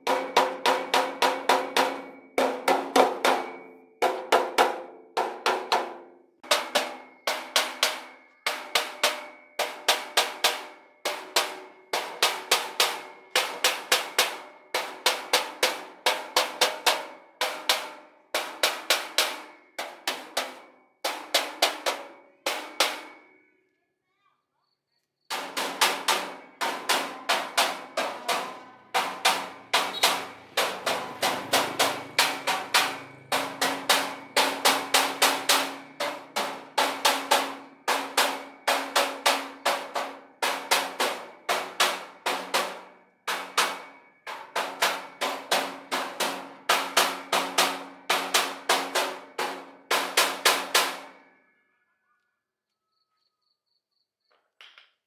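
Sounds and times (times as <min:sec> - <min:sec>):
hammer blows on ringing steel: 0:25.9 - 0:42.8.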